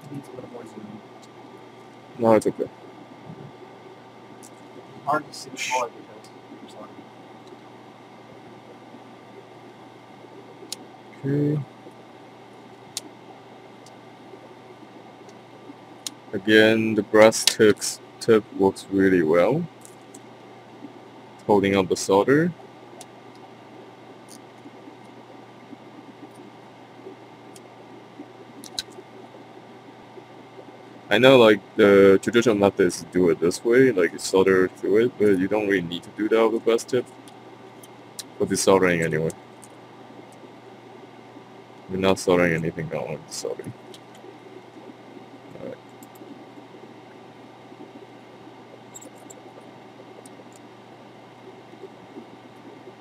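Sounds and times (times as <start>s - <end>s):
faint clicks: 4.4s - 4.8s, 9.6s - 11.2s, 12.7s - 13.2s, 13.8s - 16.2s, 19.8s - 21.5s, 22.9s - 30.8s, 43.6s - 50.7s
faint ticks: 11.8s - 16.2s, 19.8s - 21.5s, 22.8s - 30.9s, 37.0s - 38.4s, 43.6s - 53.0s.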